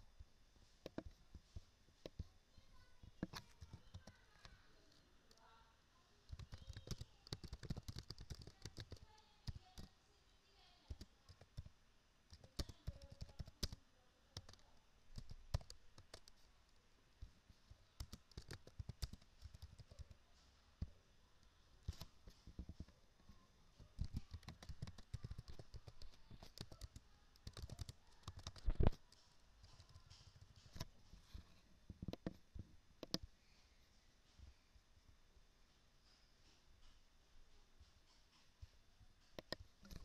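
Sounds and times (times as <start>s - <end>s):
computer keyboard typing: 3.2s - 4.5s, 6.3s - 9.9s, 10.9s - 11.7s, 12.3s - 13.8s, 14.4s - 16.4s, 18.0s - 20.2s, 23.9s - 30.9s, 32.0s - 32.4s, 33.0s - 33.2s, 39.4s - 40.0s.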